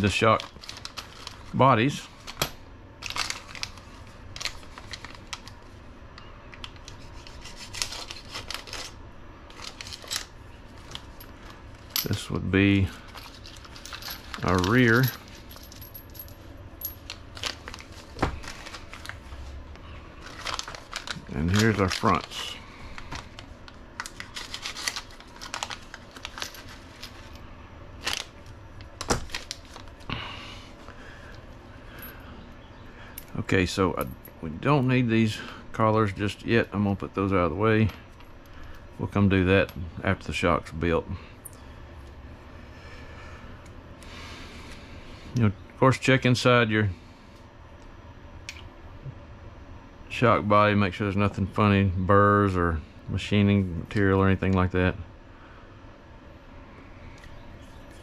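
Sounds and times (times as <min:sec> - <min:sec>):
plastic bags crinkling: 0:00.1 - 0:02.4, 0:03.0 - 0:05.6, 0:07.7 - 0:11.6, 0:13.0 - 0:15.8, 0:17.0 - 0:19.5, 0:20.2 - 0:27.3, 0:28.0 - 0:30.1.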